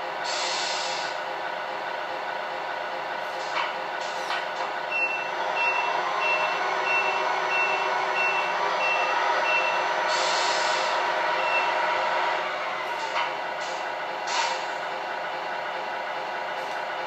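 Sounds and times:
diesel engine idling: 0.0 - 17.0
air brake hiss: 0.2 - 1.2, 10.1 - 11.0, 13.0 - 14.8
reversing beeper: 4.9 - 11.8.

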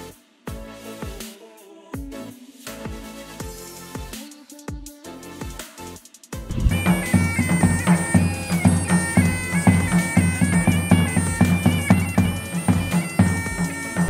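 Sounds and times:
bass drum beating: 6.4 - 8.8
bagpipe playing: 6.5 - 14.0.

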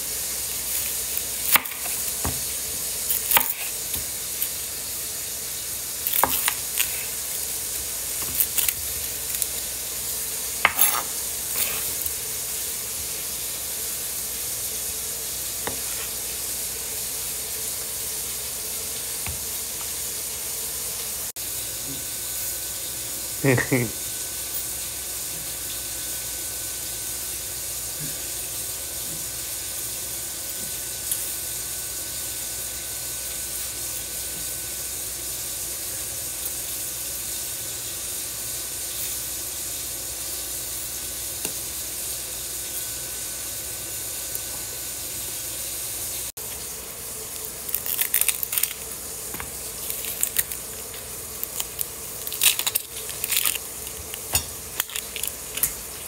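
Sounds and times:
onion skin crackling rustles: 6.0 - 10.1, 46.5 - 56.0.

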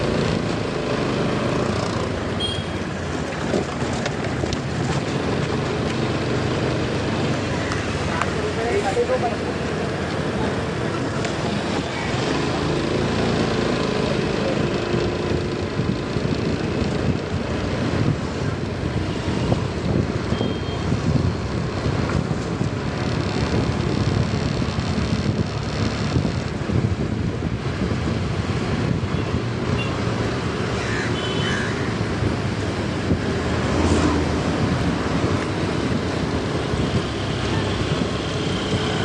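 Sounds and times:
road noise: 0.0 - 39.0
wind buffeting microphone: 15.2 - 30.5, 31.8 - 39.0.

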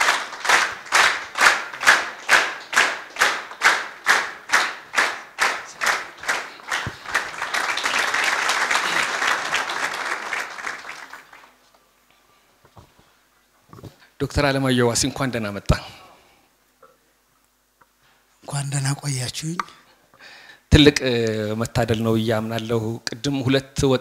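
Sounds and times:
audience clapping in rhythm: 0.0 - 11.6
loose applause: 0.0 - 11.6.

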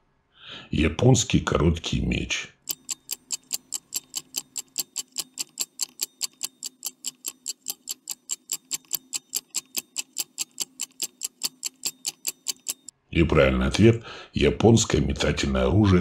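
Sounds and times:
stopwatch ticking: 2.6 - 12.9.

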